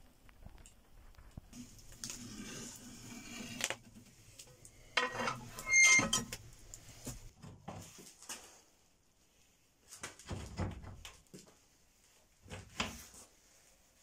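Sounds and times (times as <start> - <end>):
steel rod scraping metal: 5.0 - 6.4.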